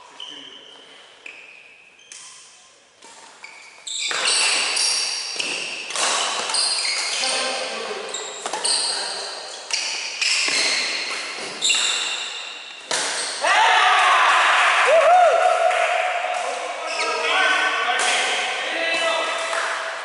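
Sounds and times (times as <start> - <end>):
shoes squeaking on wooden floor: 0.0 - 13.4, 16.8 - 17.4
rackets hitting shuttlecock: 3.0 - 7.2, 9.7 - 13.4.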